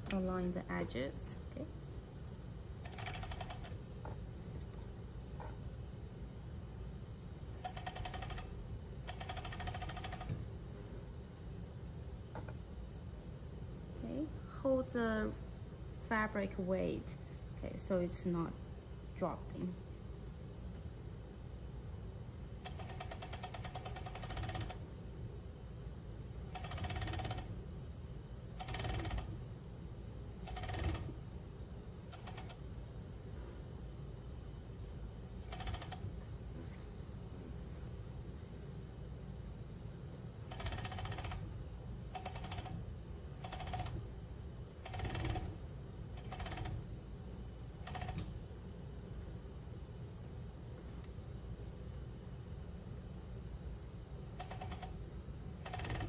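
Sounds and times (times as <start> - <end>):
sewing machine stitching: 2.8 - 3.8, 7.6 - 8.4, 22.7 - 24.8, 26.6 - 27.5, 28.6 - 29.4, 30.5 - 31.1, 40.5 - 41.4, 44.8 - 45.6, 46.2 - 46.8, 55.7 - 56.0.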